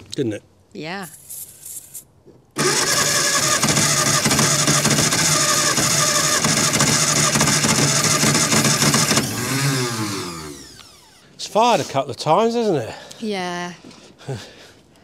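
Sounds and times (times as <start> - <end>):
engine firing: 2.6 - 11.2
starter motor cranking engine: 2.6 - 11.3.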